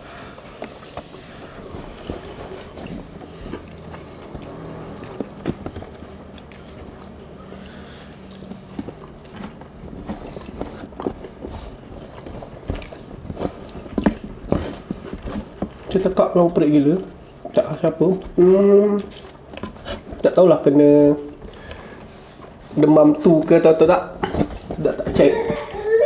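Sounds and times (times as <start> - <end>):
chewing: 0.6 - 16.0.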